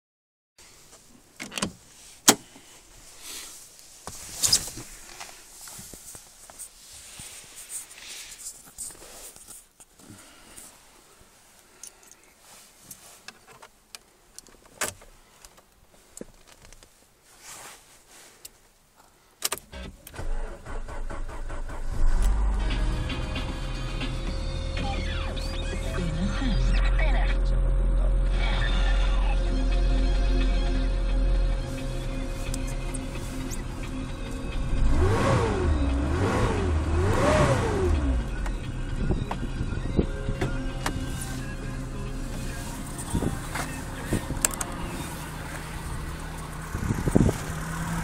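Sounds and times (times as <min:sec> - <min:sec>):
rustling: 0:00.6 - 0:19.3, 0:31.7 - 0:34.5, 0:40.5 - 0:48.0
car engine starting: 0:19.4 - 0:48.0.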